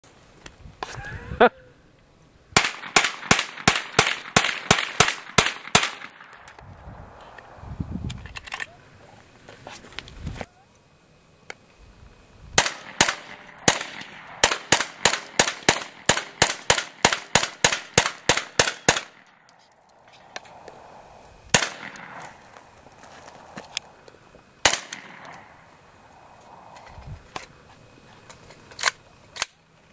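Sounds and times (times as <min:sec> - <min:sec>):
rapid rifle gunshots: 0:02.6 - 0:06.4, 0:12.6 - 0:19.3, 0:21.5 - 0:22.4, 0:24.6 - 0:25.5.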